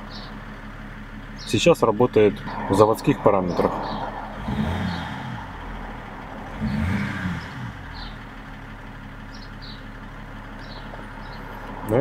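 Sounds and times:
diesel engine idling and revving: 0.0 - 12.0.

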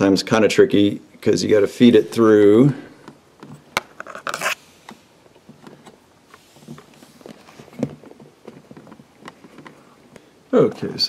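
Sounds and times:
metal scraping on plaster: 3.9 - 4.6.

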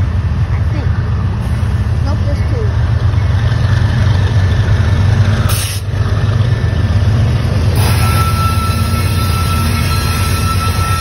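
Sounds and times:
diesel locomotive engine rumble: 0.0 - 11.0
thin high whine: 7.8 - 11.0.

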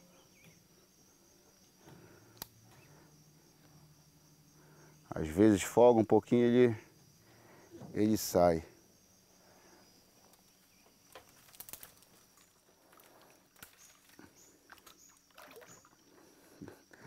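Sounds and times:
faint clicks: 2.3 - 2.8
small water splashes: 13.5 - 16.2.

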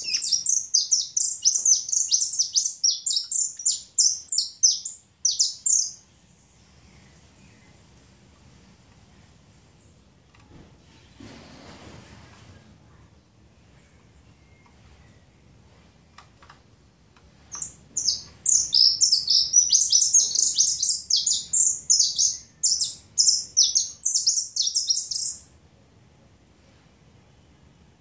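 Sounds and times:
finch singing: 0.0 - 6.0, 17.5 - 25.5.

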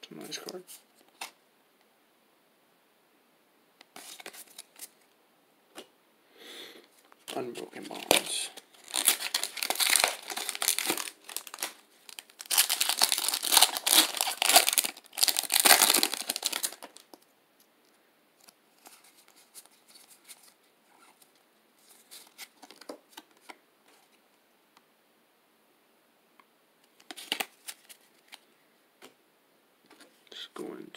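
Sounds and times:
cards clicking and rustling: 7.3 - 17.2, 27.0 - 28.4
foil wrapper crinkling and tearing: 7.9 - 17.2, 27.1 - 28.0.

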